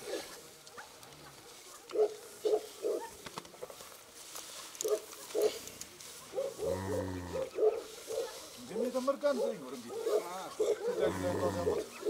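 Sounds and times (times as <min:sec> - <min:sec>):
yak grunting: 0:06.6 - 0:07.6, 0:10.6 - 0:11.9.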